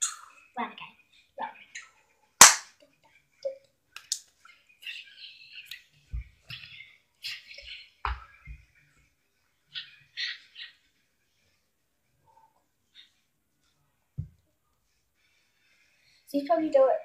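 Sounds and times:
sharp smack: 2.4s - 2.7s.

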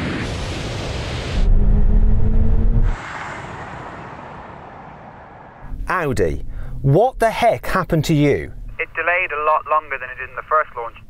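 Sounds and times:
loud low rumble: 0.0s - 6.8s.

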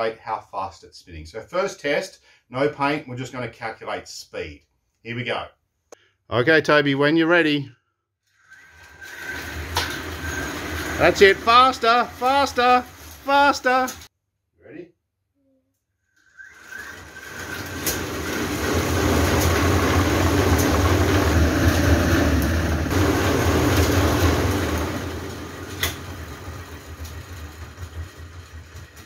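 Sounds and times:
spinning machine whirring rush: 8.3s - 14.1s, 16.2s - 29.0s.

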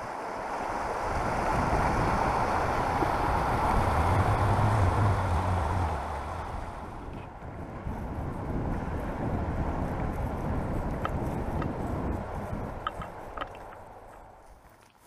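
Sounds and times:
wind rumble on microphone: 0.0s - 14.9s.

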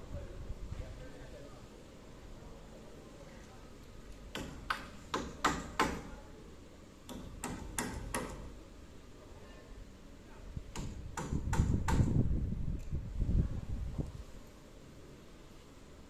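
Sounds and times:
hammer driving nails into timber: 4.3s - 6.1s, 7.0s - 8.5s, 10.7s - 12.1s.

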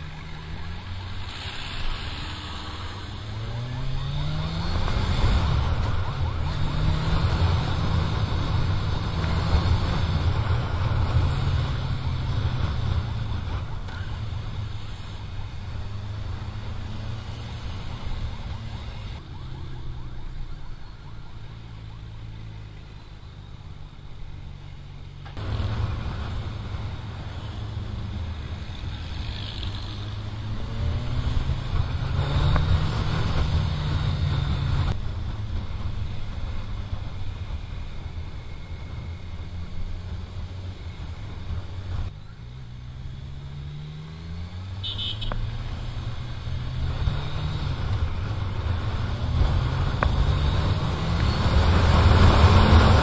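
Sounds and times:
wind and road noise: 0.0s - 53.0s
motorcycle engine accelerating: 25.4s - 53.0s.

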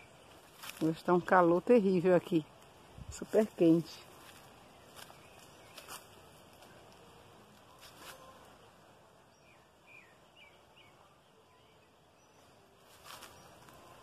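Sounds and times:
faint high bird chirps: 7.6s - 8.6s, 9.3s - 14.0s.

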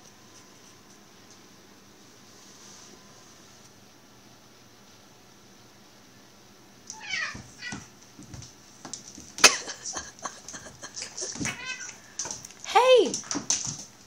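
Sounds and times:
cat meowing: 6.9s - 7.9s, 11.4s - 12.0s
cats scuffling: 6.9s - 14.0s.

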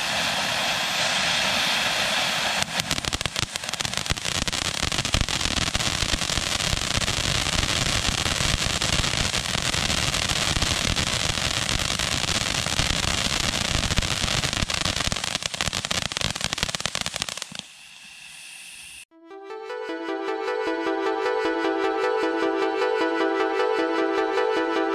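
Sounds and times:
firework fountain hissing and crackling: 0.0s - 19.1s.

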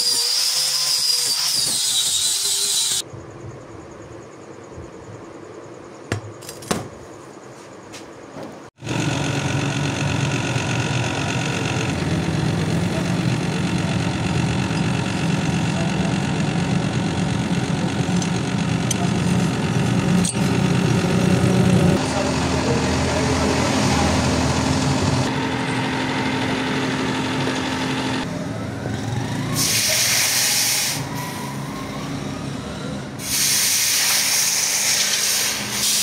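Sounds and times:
electric grinder running: 8.8s - 31.1s.

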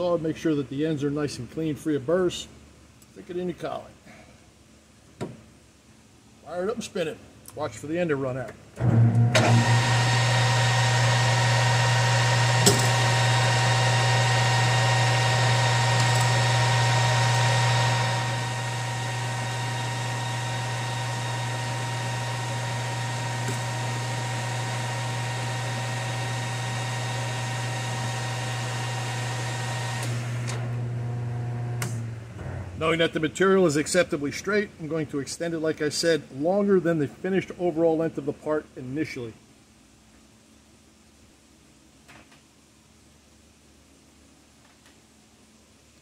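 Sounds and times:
metal lathe humming: 9.4s - 31.8s.

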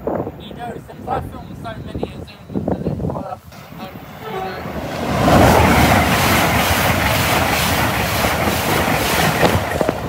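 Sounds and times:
high-speed train passing: 3.4s - 10.0s.

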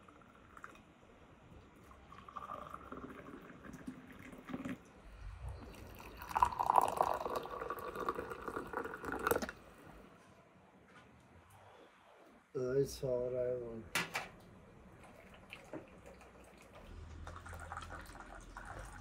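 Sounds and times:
tea pouring into glasses: 0.0s - 0.9s, 1.6s - 5.0s, 5.6s - 9.6s, 15.0s - 19.0s.

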